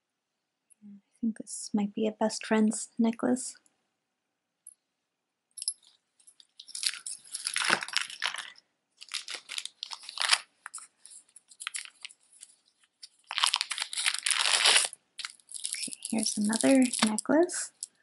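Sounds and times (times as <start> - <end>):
beads clicking: 5.6 - 18.0
plastic bag crinkling: 6.3 - 18.0.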